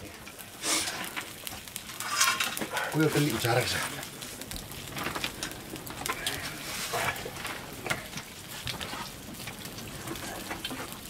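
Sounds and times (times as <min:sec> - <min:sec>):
food sizzling in a wok: 0:00.0 - 0:03.8
fire crackling and popping: 0:00.0 - 0:11.0.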